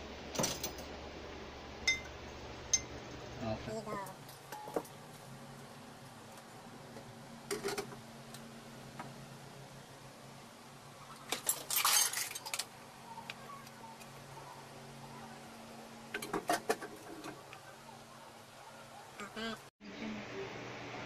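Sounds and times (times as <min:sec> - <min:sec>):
dishes and cutlery clinking: 0:01.9 - 0:03.0, 0:11.3 - 0:12.7.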